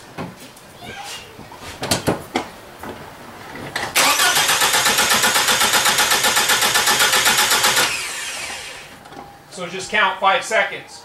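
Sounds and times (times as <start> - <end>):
starter motor cranking engine: 4.0 - 8.9.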